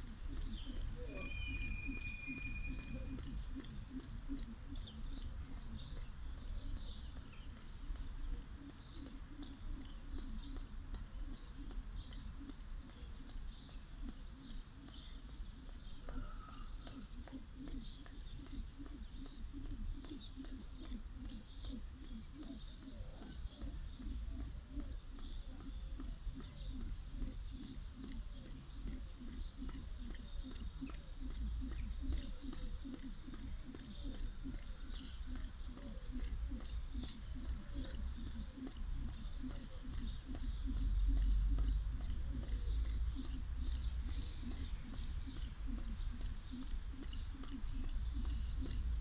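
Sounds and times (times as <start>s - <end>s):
jump rope slapping ground: 0.0s - 49.0s
light chirps: 0.0s - 49.0s.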